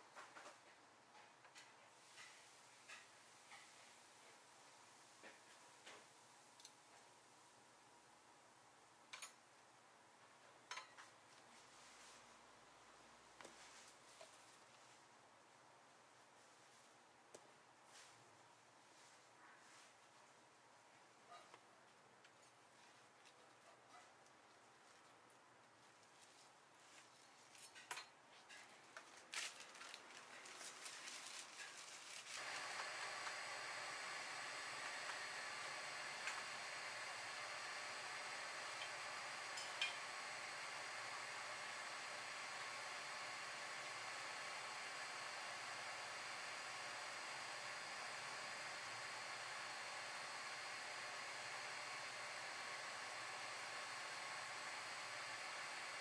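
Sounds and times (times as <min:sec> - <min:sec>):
steady hiss: 0:30.9 - 0:56.0.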